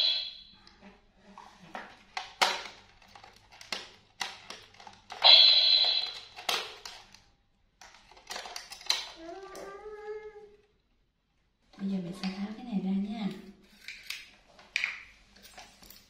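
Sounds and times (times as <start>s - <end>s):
bright ringing crash: 0.0s - 0.5s, 5.2s - 6.2s.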